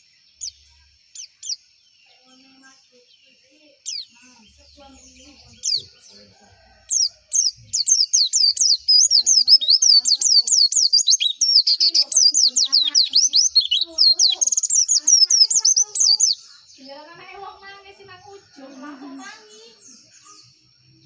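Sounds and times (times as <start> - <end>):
bird singing high whistled notes: 7.0 - 16.4.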